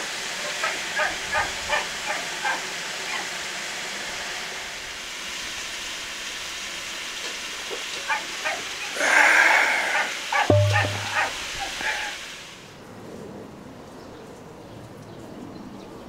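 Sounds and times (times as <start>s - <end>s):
steady hiss: 2.8s - 12.6s.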